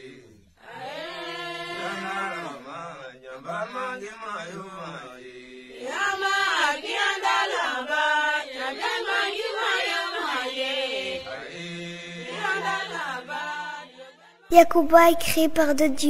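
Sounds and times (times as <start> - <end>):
group chanting: 0.0 - 14.5.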